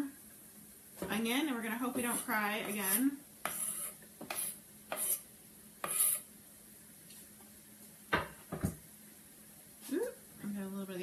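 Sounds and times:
faint sizzle: 0.0 - 11.0
utensil scraping frying pan: 1.7 - 6.3.

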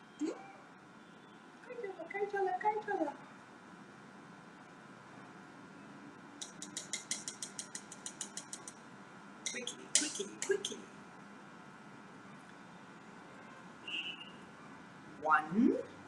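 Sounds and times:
tongs clicking against container: 6.4 - 8.8, 9.5 - 10.8.

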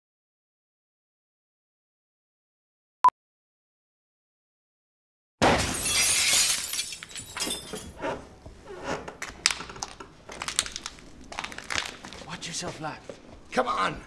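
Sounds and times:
glass shattering crash: 5.4 - 7.9.

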